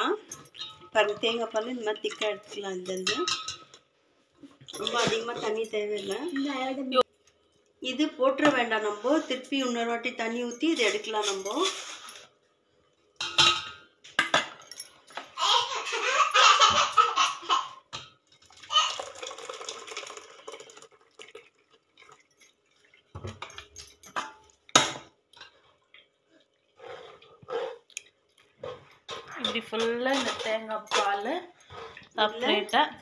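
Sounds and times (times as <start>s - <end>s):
slurry poured into a strainer: 18.4s - 23.0s.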